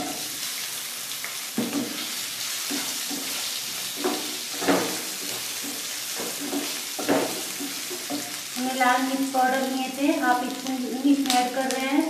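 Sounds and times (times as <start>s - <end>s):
potatoes sizzling in oil: 0.0s - 12.0s
spatula scraping and knocking pan: 1.6s - 8.6s.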